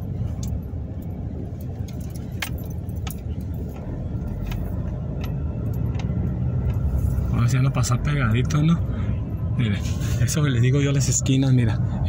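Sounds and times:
clicks and rattles inside car: 0.0s - 8.8s.

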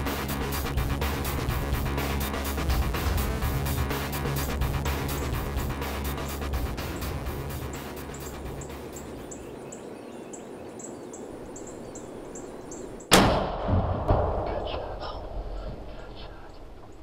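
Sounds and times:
background music: 0.0s - 9.5s
rifle shot ringing off: 13.1s - 15.4s
loud bang: 13.1s - 16.0s.

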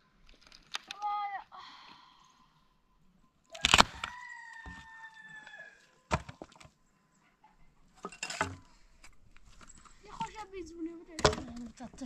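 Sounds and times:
axe chopping dry branches: 3.5s - 4.1s
rooster crowing: 3.5s - 6.0s.

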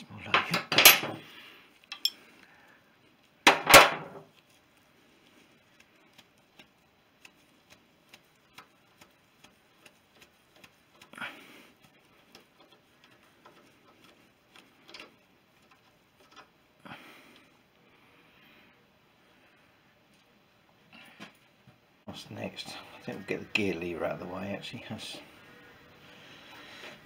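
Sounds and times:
gloved fingers rustling and scraping: 4.2s - 17.6s.

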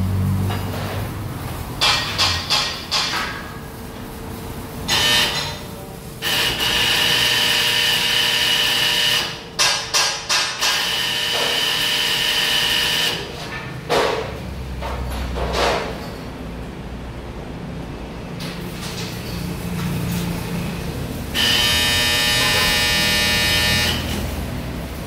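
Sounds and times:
power tool whining on steel: 21.4s - 24.3s.

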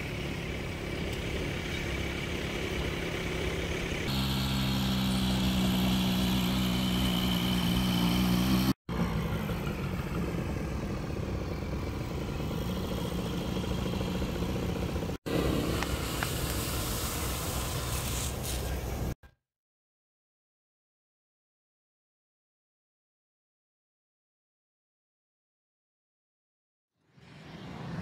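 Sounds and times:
quad bike engine idling: 0.0s - 18.1s
tyres on wet road: 0.0s - 19.2s
vehicle engine: 0.0s - 19.2s.

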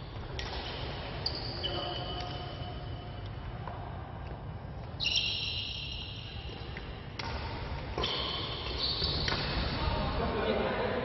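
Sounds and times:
racket hitting shuttlecock: 0.2s - 1.1s, 6.8s - 9.7s
shoes squeaking on court: 0.2s - 2.9s, 4.9s - 6.6s, 8.0s - 9.7s.

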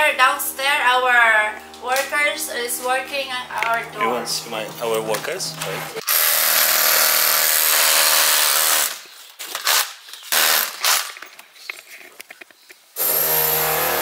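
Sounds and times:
power tool running: 4.8s - 9.0s, 13.0s - 14.0s.

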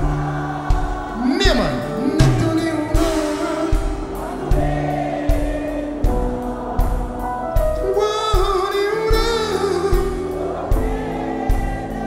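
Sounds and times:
person singing: 0.0s - 6.0s, 7.6s - 10.7s
bass: 0.0s - 12.0s
drum beat: 0.0s - 12.0s.

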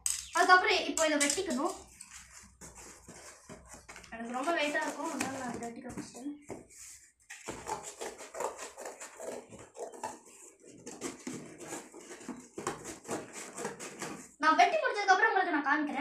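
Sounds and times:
scissors cutting cardboard: 1.5s - 5.8s, 6.7s - 14.4s.

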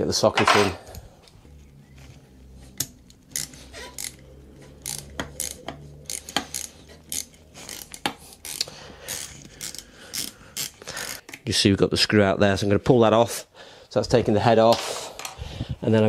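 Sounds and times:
metal tool scraping: 2.6s - 11.2s
hand ratchet clicking: 2.8s - 11.4s.

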